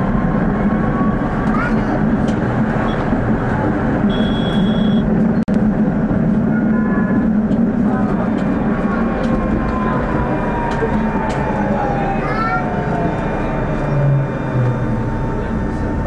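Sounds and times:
tram rumbling on rails: 0.0 - 16.0
high steady tone: 4.0 - 5.1, 8.6 - 16.0.

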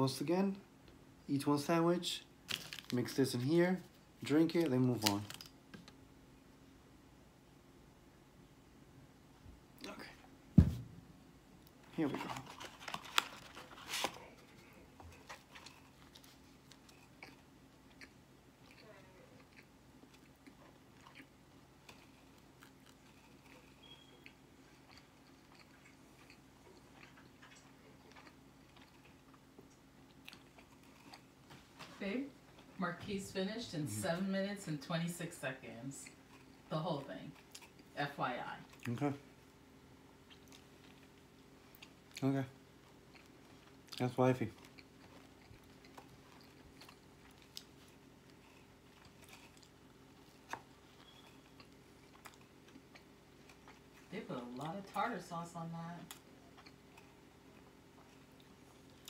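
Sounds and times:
low steady hum: 0.0 - 59.0
man chewing and lip-smacking: 19.4 - 31.6, 40.2 - 42.2, 44.6 - 54.1, 56.1 - 59.0.

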